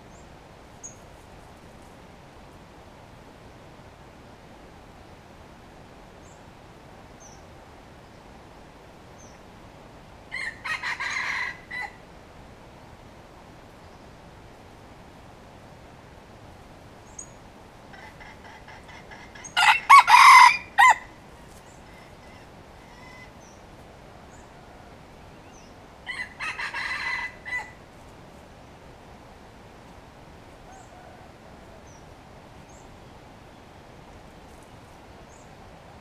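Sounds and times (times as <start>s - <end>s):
rooster crowing: 10.3s - 12.0s, 17.9s - 21.2s, 26.0s - 27.8s, 30.6s - 32.0s.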